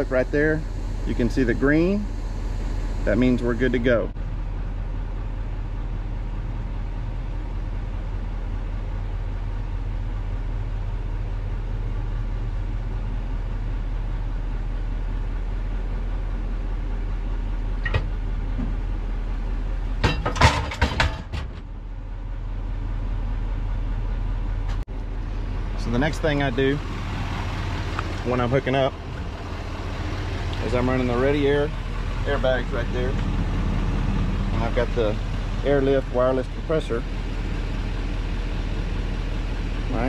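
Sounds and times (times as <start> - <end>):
diesel engine running: 0.0 - 40.0
metallic knocks and clanks: 20.0 - 21.6.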